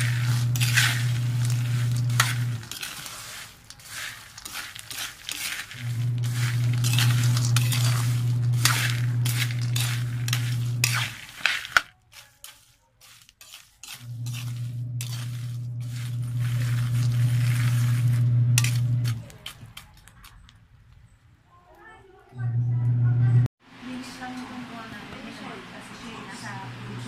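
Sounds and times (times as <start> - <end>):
peanuts rattling in container: 0.0 - 20.6
steady low hum: 5.8 - 11.2, 14.0 - 19.2, 22.3 - 23.5.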